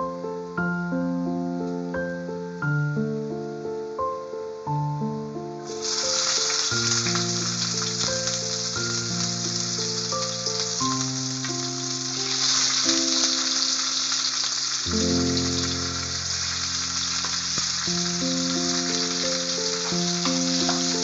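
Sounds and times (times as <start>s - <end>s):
background music: 0.0s - 21.0s
onions sizzling in hot oil: 5.6s - 21.0s.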